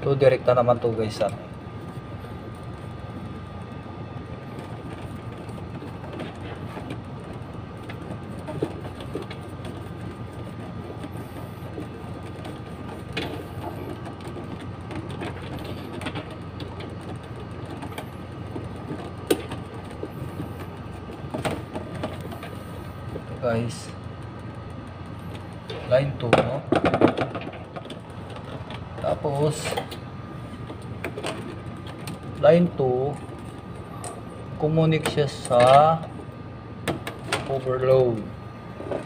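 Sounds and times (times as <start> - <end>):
background hum and hiss: 0.0 - 39.0
wires clicking and rustling: 4.5 - 23.4.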